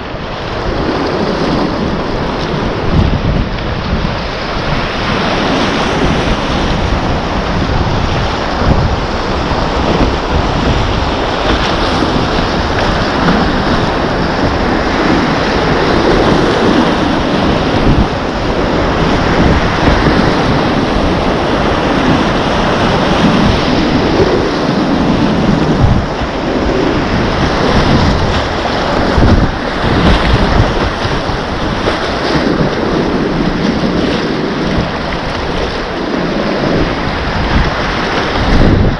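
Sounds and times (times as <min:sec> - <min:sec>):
whitewater rapids rushing: 0:00.0 - 0:38.9
wind buffeting microphone: 0:00.0 - 0:38.9.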